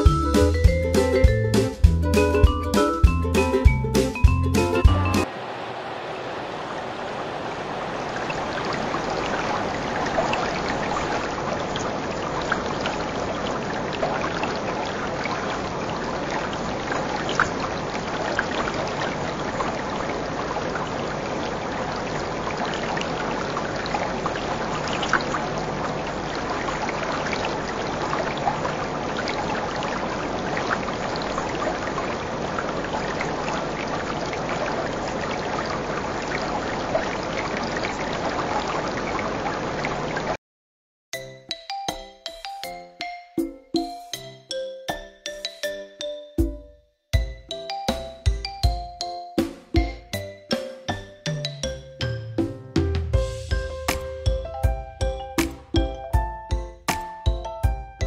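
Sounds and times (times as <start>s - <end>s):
water trickling and bubbling: 4.9s - 40.4s, 49.8s - 52.3s.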